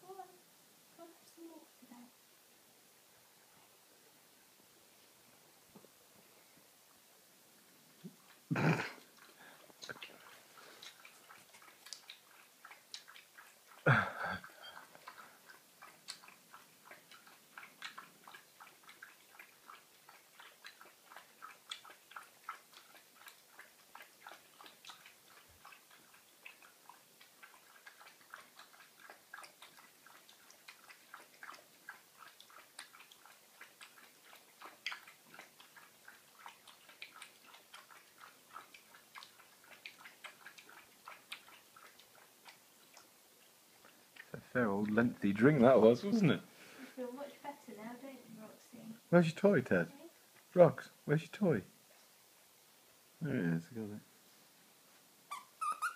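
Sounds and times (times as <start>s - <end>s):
dog lapping water: 8.2s - 46.0s.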